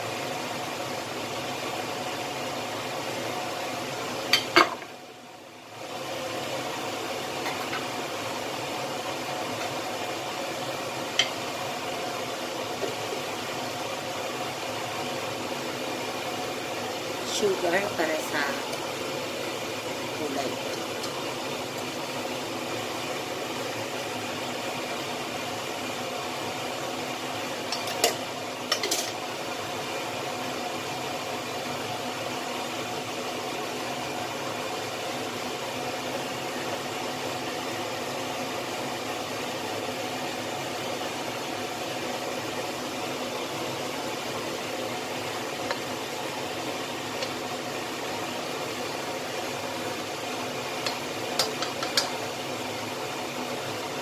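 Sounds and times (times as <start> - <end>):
sugar hissing in hot oil: 0.0 - 54.0
spatula tapping a wok: 27.7 - 29.1, 50.8 - 52.2.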